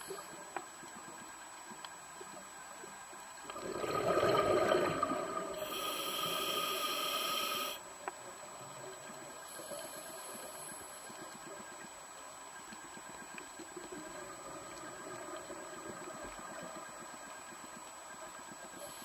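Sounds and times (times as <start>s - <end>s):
exhaled bubbles underwater: 3.4s - 7.7s
regulator hissing inhalation: 5.5s - 7.8s.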